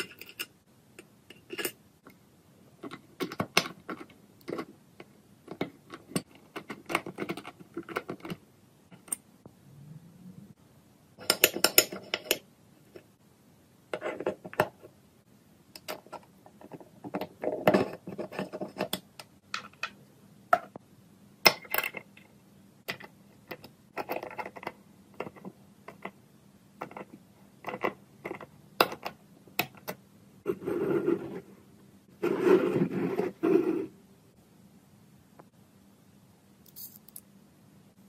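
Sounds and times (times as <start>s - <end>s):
metal parts clicking: 36.7s - 37.2s.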